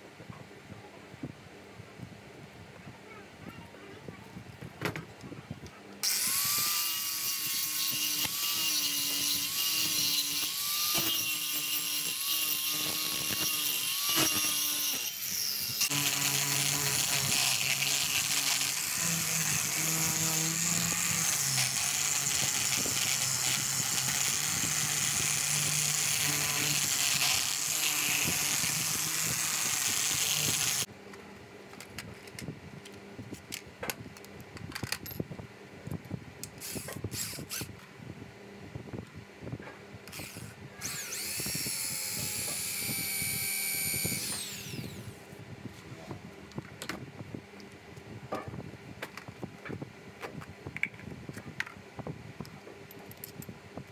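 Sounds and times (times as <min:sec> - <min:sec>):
angle grinder sanding wood: 0:06.0 - 0:30.9
power sander running: 0:06.0 - 0:30.9, 0:40.1 - 0:45.1.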